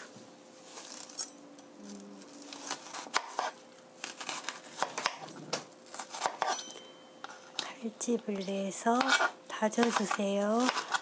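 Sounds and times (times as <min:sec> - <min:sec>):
knife cutting onion: 0:02.3 - 0:06.9, 0:08.3 - 0:11.0.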